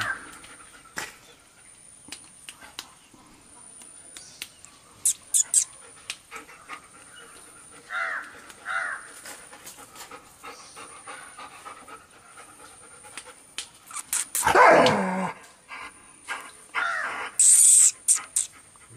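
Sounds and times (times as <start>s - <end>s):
dog panting: 9.4s - 13.6s.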